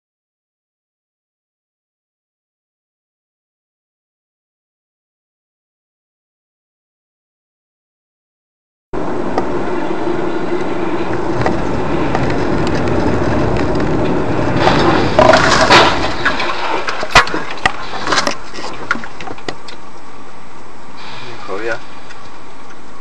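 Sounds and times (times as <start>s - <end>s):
road and engine noise inside car: 9.0s - 15.2s
debris knocking on road: 11.4s - 19.8s.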